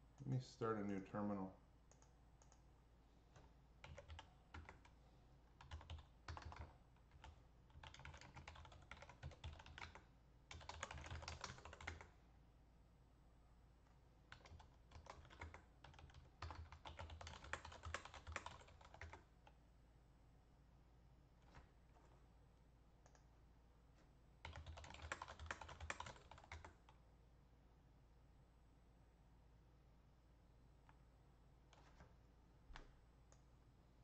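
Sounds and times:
typing on keyboard: 1.9 - 2.6, 3.3 - 5.0, 5.6 - 12.1, 14.3 - 19.6, 24.4 - 27.0, 31.7 - 32.1.

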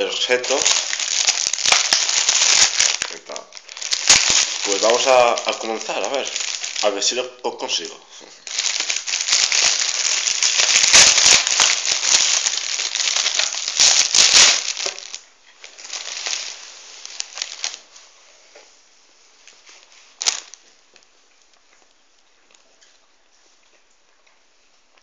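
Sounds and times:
plastic packaging crackling: 0.0 - 18.1, 19.6 - 20.8.

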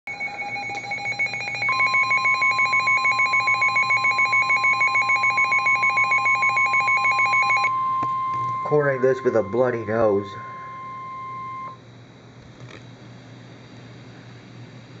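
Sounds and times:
rapidly pulsing electronic beep: 0.1 - 11.8
steady high warning tone: 0.1 - 11.9.

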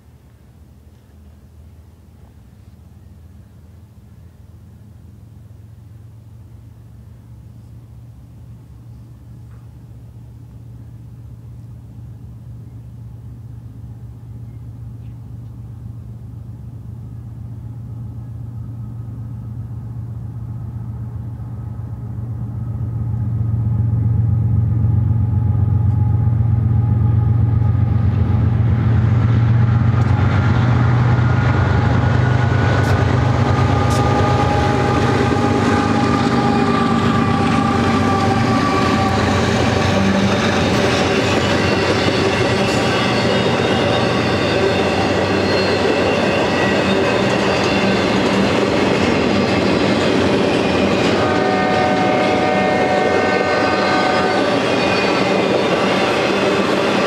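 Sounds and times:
diesel locomotive engine drone: 0.0 - 57.0
high wheel squeal: 32.5 - 57.0.

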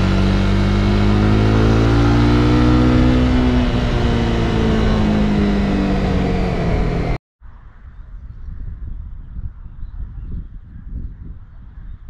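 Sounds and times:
motorcycle engine running: 0.0 - 7.2
wind noise: 0.0 - 12.0.

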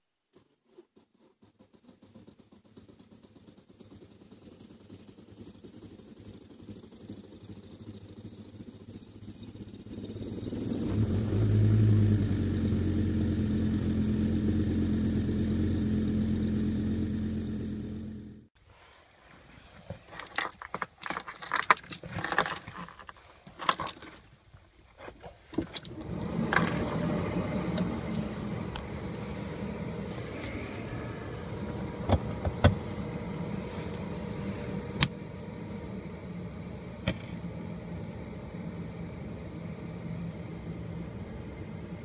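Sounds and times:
car keys jangling: 20.0 - 24.3, 25.6 - 27.1
steady low hum: 25.6 - 42.0.

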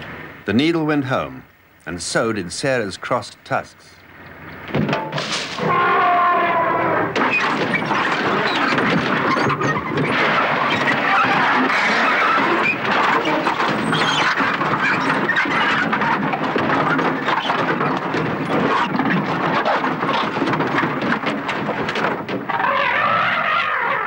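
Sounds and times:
metal crashing and scraping: 4.8 - 6.1, 7.2 - 22.5.

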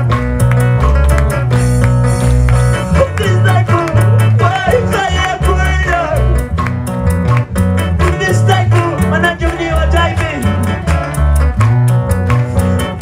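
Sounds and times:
bass guitar notes: 0.0 - 13.0
electronic keyboard melody: 0.0 - 13.0
live band playing praise song: 0.0 - 13.0
steady quick beat: 0.0 - 13.0.

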